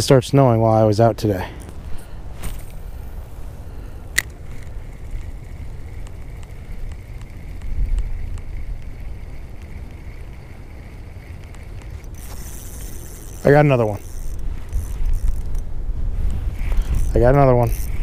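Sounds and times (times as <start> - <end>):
wind rumble on microphone: 1.0 - 18.0
fishing reel whirring: 1.6 - 18.0
fishing reel bail click: 4.0 - 15.7, 16.4 - 18.0.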